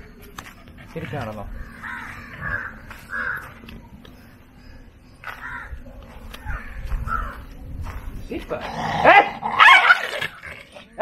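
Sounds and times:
crow cawing: 0:01.6 - 0:03.6, 0:05.3 - 0:05.8, 0:06.4 - 0:07.4.

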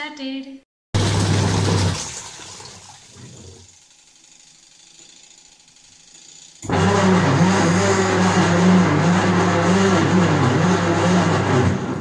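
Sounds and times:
washing machine churning water: 0:01.0 - 0:04.7
washing machine whine: 0:01.0 - 0:12.0.

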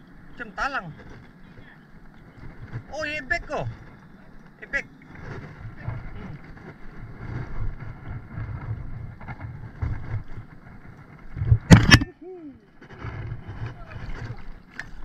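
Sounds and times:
water lapping: 0:00.0 - 0:15.0
wind rumbling on microphone: 0:00.0 - 0:15.0
fish splashing: 0:12.9 - 0:15.0.

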